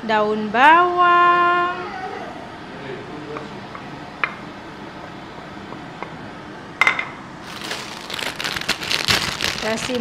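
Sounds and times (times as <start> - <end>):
dishware clinking: 6.8 - 7.2
crackling rustle: 7.4 - 10.0.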